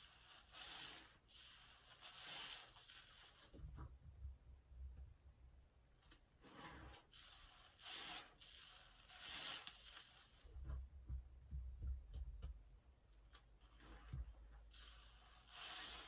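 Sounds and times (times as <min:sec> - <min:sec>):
soapy sponge squelching: 0:00.0 - 0:03.8, 0:06.4 - 0:10.8, 0:13.4 - 0:16.0
soft low thumps: 0:10.5 - 0:13.1.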